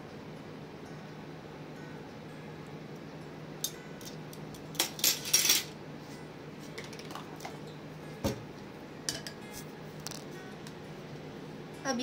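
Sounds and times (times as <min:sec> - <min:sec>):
faint steady hum: 0:00.0 - 0:12.0
metal spoon clinking on dishware: 0:03.6 - 0:05.7, 0:09.1 - 0:09.4.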